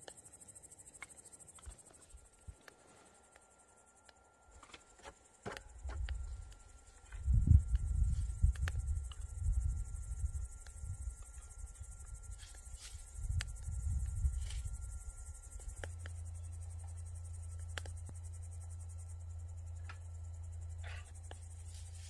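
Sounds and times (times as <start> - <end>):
scattered clicks: 0.0 - 4.8, 7.6 - 9.7, 10.4 - 20.2
crickets chirping: 0.0 - 22.0
steady low hum: 0.0 - 22.0
uneven low rumble: 5.7 - 22.0.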